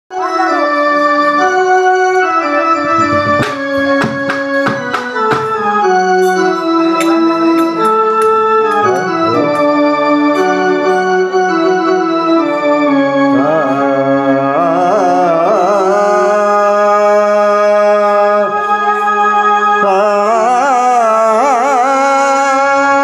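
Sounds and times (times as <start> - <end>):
organ melody on keyboard: 0.1 - 23.0
sharp taps: 3.1 - 5.6.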